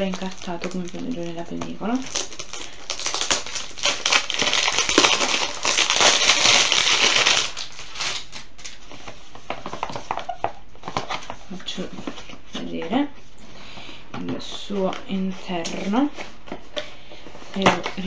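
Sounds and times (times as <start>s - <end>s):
plastic film crinkling: 0.0s - 13.1s.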